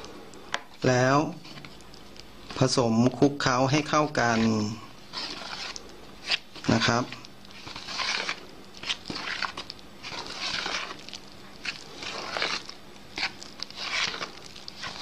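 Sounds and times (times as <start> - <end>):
fork scraping in plastic bowl: 4.2 - 15.0.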